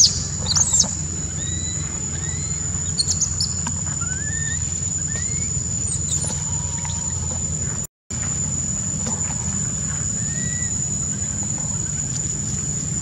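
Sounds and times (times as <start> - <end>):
baby monkey squealing: 0.0 - 7.1
high-pitched whine: 0.0 - 13.0.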